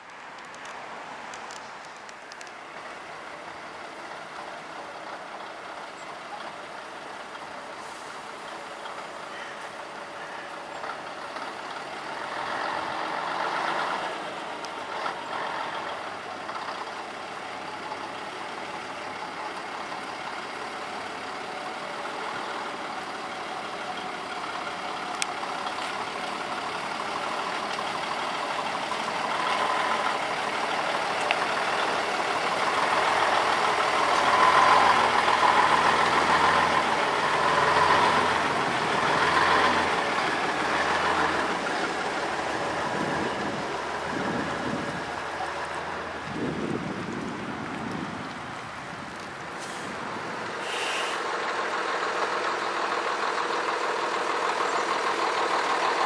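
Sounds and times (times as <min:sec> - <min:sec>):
diesel truck engine running: 0:02.4 - 0:56.0.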